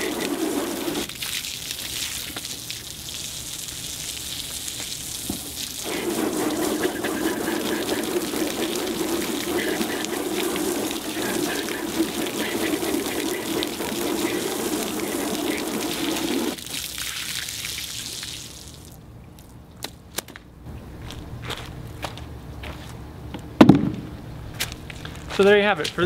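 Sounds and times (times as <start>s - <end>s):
hose spraying water into a tub: 0.0s - 18.9s.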